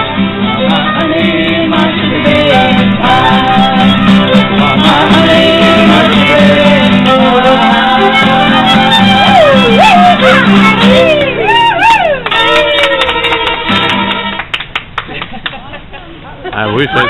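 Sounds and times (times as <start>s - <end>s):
people singing: 0.0s - 11.1s
fiddle: 0.0s - 14.5s, 16.5s - 17.0s
acoustic guitar: 0.0s - 17.0s.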